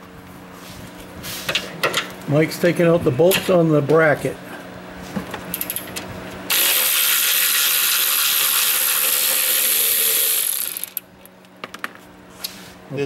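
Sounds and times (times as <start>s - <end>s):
power ratchet whirring: 6.5s - 11.1s.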